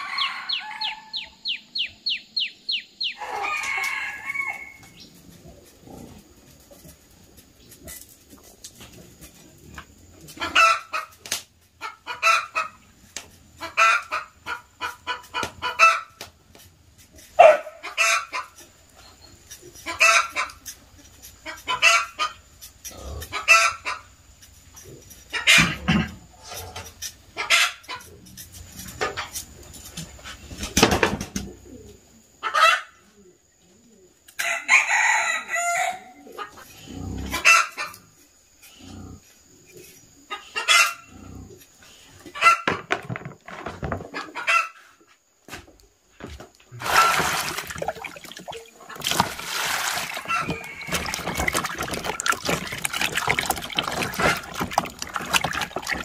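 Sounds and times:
rooster crowing: 0.0s - 1.4s, 3.2s - 4.8s, 34.4s - 36.2s, 49.8s - 52.3s
chickens clucking: 0.0s - 16.4s, 17.2s - 29.5s, 31.0s - 38.2s, 38.9s - 42.9s, 43.9s - 45.0s, 46.7s - 56.0s
water sloshing in a basin: 46.7s - 56.0s.

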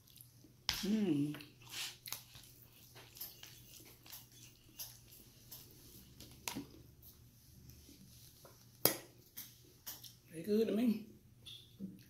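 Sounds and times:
chewing noodles: 1.4s - 6.9s.

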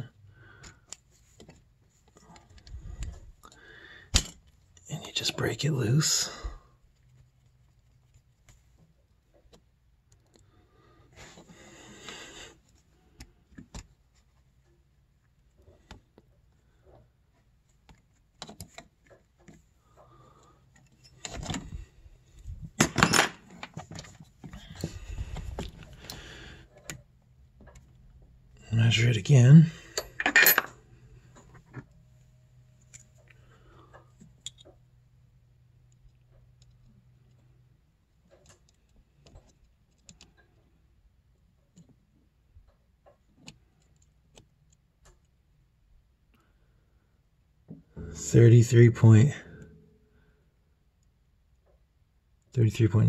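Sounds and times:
hands rustling on cable: 6.8s - 10.4s, 23.5s - 28.3s
metal wrenches clinking: 29.9s - 30.8s.

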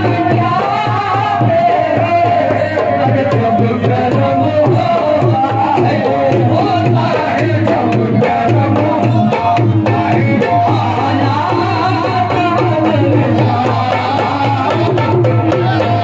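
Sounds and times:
man singing devotional song: 0.0s - 16.0s.

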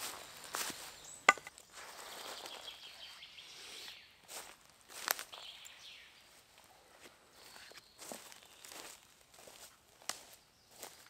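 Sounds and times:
footsteps: 0.0s - 2.6s.

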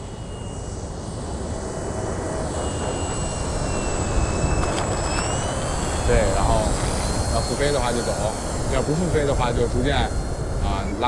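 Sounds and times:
electric motor and propeller whining: 0.0s - 11.0s.

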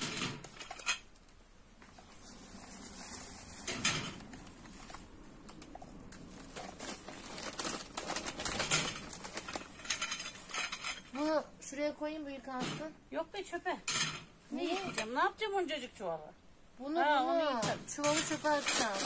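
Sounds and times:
plastic bag crinkling: 6.2s - 10.8s, 18.2s - 19.0s.

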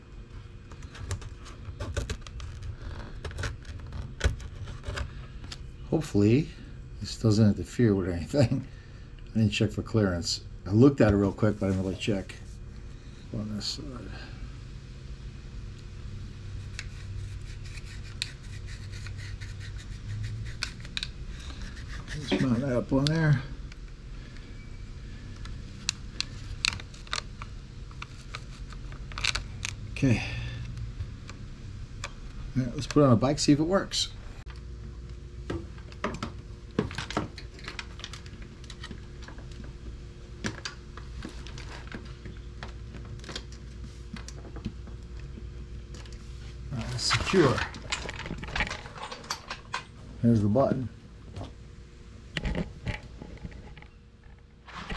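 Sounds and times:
steady low hum: 0.0s - 54.9s
clicks and scratches of plastic parts: 0.7s - 5.6s, 16.6s - 23.2s, 25.4s - 29.8s, 35.8s - 39.7s.

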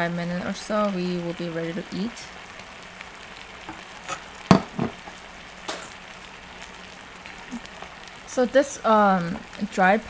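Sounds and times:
sauce bubbling in pan: 0.3s - 10.0s
knocks and clicks at pan: 4.1s - 5.0s.

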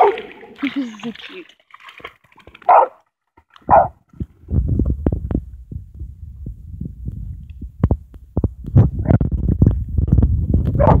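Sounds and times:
wind buffeting microphone: 3.7s - 11.0s.

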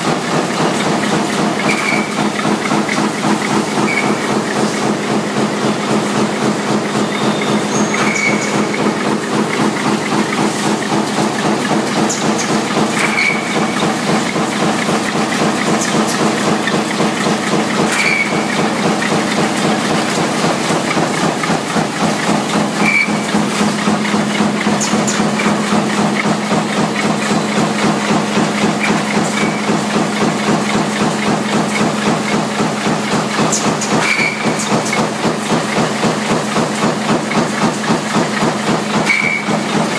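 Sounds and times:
machine hum: 0.0s - 39.9s
press clattering: 0.0s - 39.9s.

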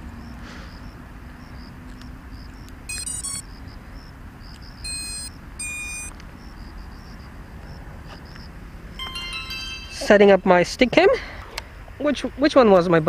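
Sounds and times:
electronic power-up beeps: 2.9s - 3.4s, 4.9s - 6.1s.

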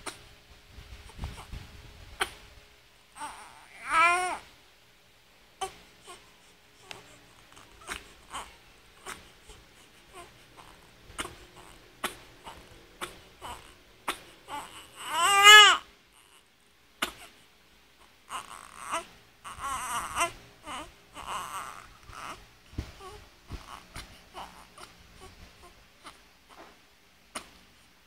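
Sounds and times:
infant crying: 3.1s - 4.4s, 5.6s - 16.4s, 18.2s - 26.7s
infant whimpering: 3.2s - 4.4s, 6.8s - 16.4s, 18.3s - 26.8s.

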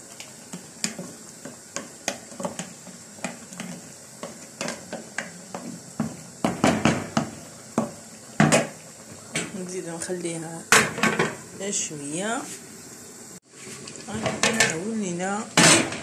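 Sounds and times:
tomatoes popping in pot: 0.1s - 9.8s.

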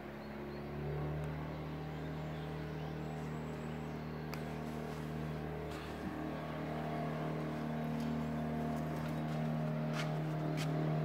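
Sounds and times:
speedboat engine drone: 0.0s - 11.0s.

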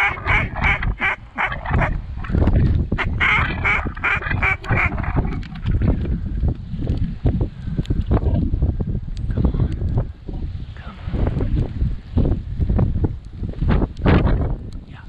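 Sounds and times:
ducks quacking: 0.0s - 6.0s
wind rumbling on microphone: 0.0s - 15.0s.

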